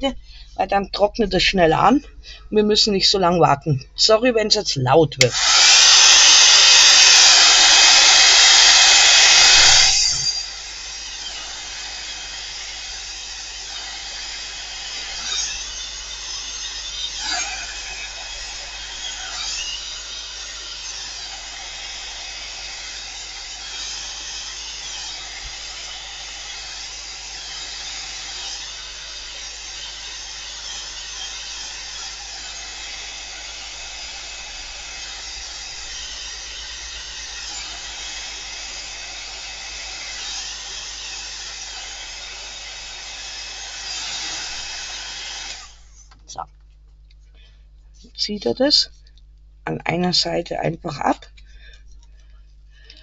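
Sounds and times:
hair dryer blowing: 5.2 - 46.0.

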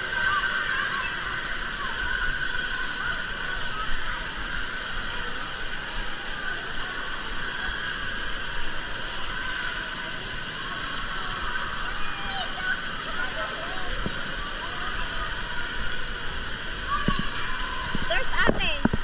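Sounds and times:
water spraying and splashing: 0.0 - 19.0.

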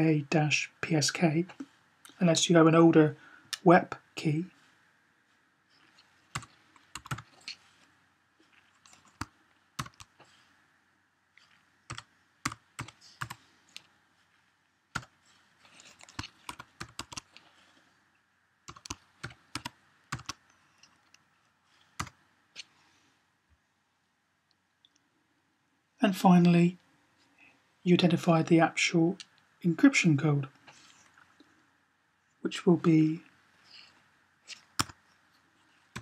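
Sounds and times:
keyboard typing clicks: 6.4 - 7.3, 8.8 - 10.1, 11.9 - 13.4, 16.0 - 17.3, 18.7 - 20.4, 34.5 - 35.0.

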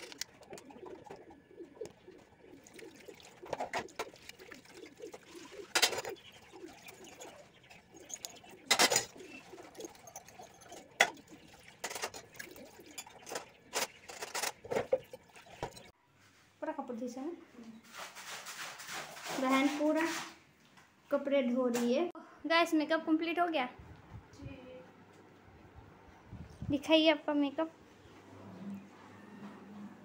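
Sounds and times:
pigeons cooing: 0.0 - 15.9.

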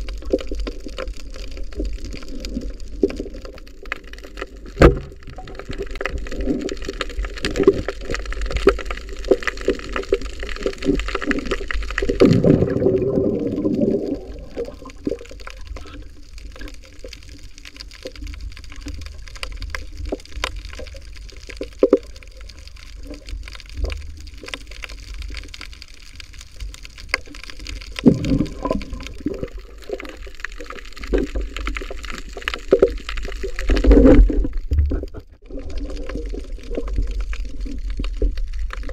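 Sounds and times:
surges of swirling water: 0.0 - 17.1, 27.2 - 38.9
underwater water gurgling: 0.0 - 38.9.

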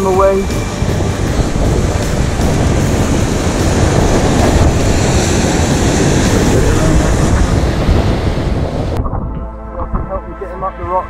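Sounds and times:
wind buffeting microphone: 0.0 - 11.0
surf breaking on rocks: 0.3 - 9.0.

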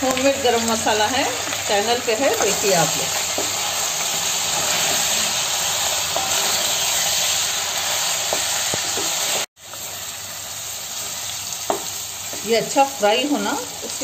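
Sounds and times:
chicken frying in hot oil: 0.0 - 14.0
wooden spatula scraping pot: 2.3 - 7.4.

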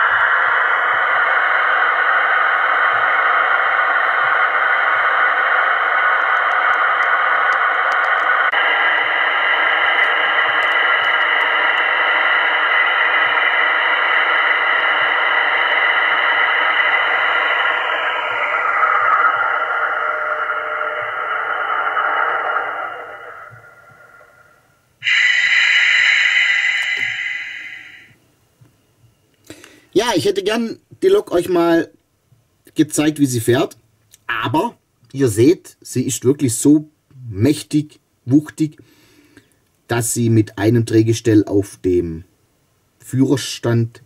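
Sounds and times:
model train engine sound: 0.0 - 28.2.

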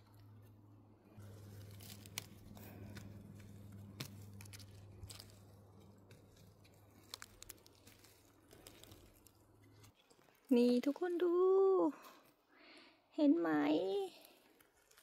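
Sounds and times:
low steady hum: 0.0 - 15.0
tearing and crunching of moss: 1.1 - 11.3, 14.2 - 15.0.

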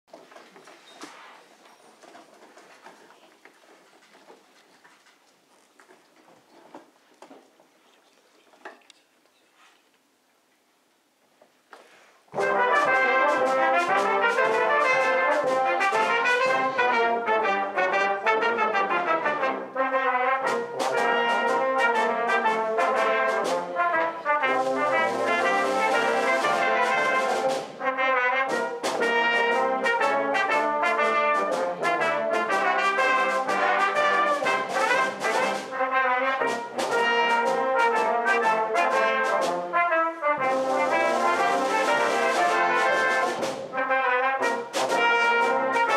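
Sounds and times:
brass band playing a march: 12.3 - 45.9.

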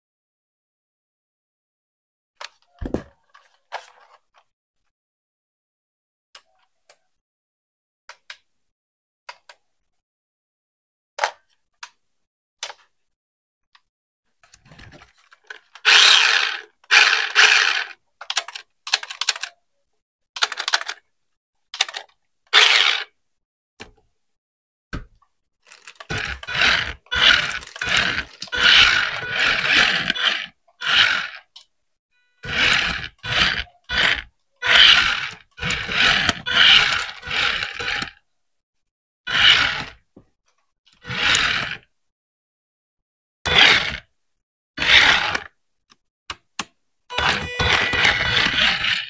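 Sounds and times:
packaging rustling and scraping: 25.7 - 30.2.

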